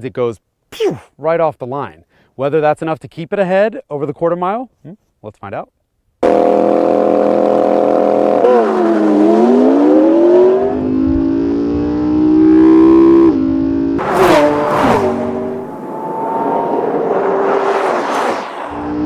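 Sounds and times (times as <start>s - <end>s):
cars passing in loud rushes: 6.2s - 19.0s
sports car engines revving: 6.2s - 19.0s.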